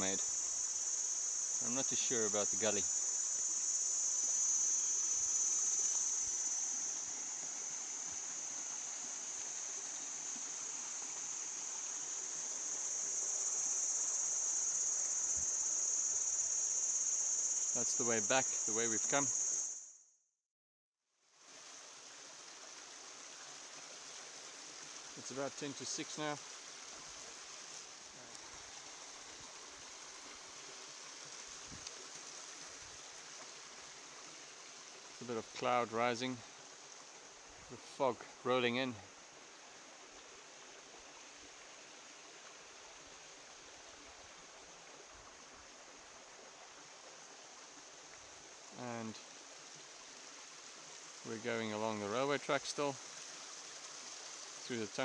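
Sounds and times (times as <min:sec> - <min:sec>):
faint rushing outdoor ambience: 0:00.0 - 0:19.7, 0:24.5 - 0:42.0
insects chorus: 0:00.0 - 0:20.0, 0:21.5 - 0:55.0.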